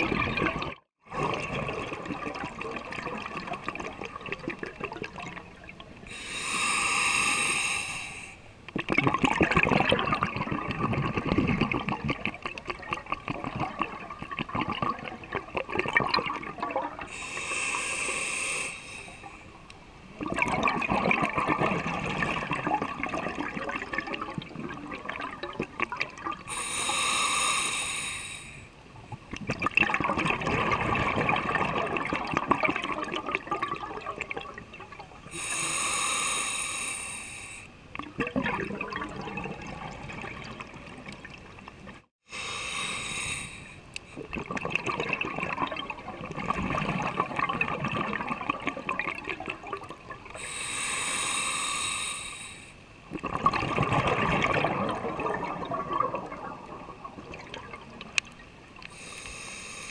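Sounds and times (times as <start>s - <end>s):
exhaled air bubbling: 0.0s - 59.9s
regulator breathing inhales: 6.1s - 8.5s, 17.1s - 19.5s, 26.5s - 28.7s, 35.3s - 37.7s, 42.2s - 43.9s, 50.4s - 52.8s, 58.9s - 59.9s.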